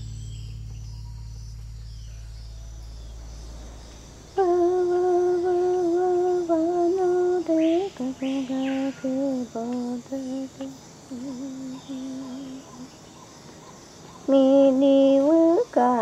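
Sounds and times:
low steady drone: 0.0 - 13.7
woman humming a slow chant: 4.3 - 13.2, 14.2 - 16.0.

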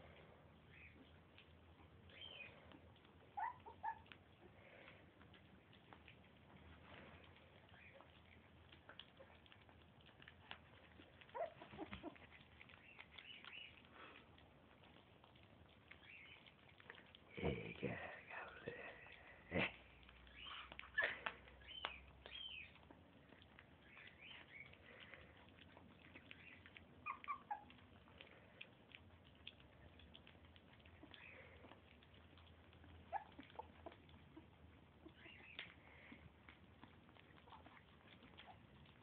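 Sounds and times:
puppies squeaking and whimpering: 0.7 - 1.2, 2.0 - 4.5, 7.6 - 13.9, 14.8 - 16.8, 19.6 - 28.2, 30.7 - 39.0.

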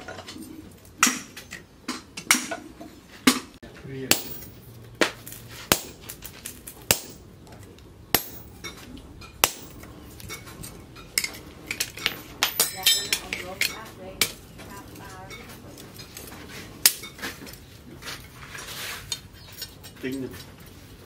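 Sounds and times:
hammer strikes on hot steel: 3.3 - 7.3, 8.1 - 10.4
metal clinks with ringing: 4.1 - 4.7, 8.2 - 8.8, 12.0 - 13.8.

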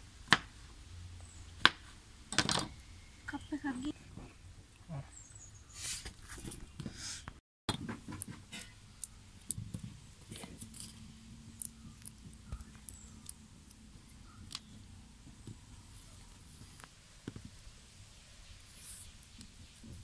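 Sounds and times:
soft clicks and rustles of fruit: 8.1 - 17.8.

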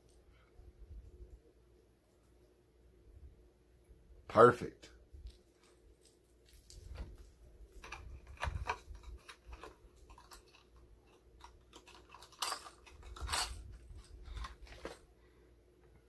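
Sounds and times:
packaging rustling and crinkling: 5.2 - 15.1.

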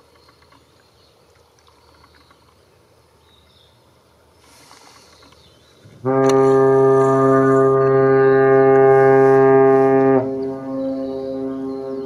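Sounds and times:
ship's whistle blast: 6.0 - 12.0.

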